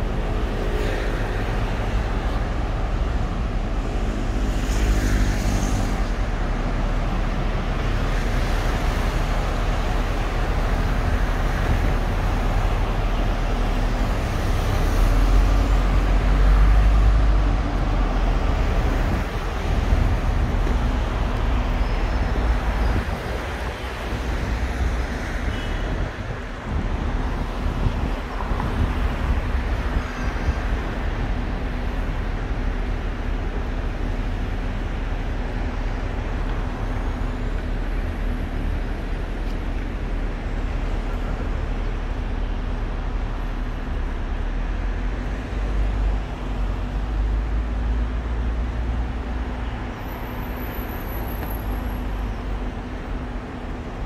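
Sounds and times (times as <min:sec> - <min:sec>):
city traffic rumble: 0:00.0 - 0:54.0.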